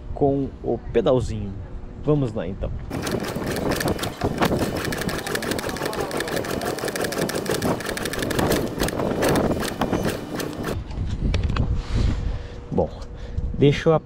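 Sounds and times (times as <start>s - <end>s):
motorcycle engine being kick-started: 2.9s - 10.8s
rapid mechanical clicking and rattling: 2.9s - 10.8s.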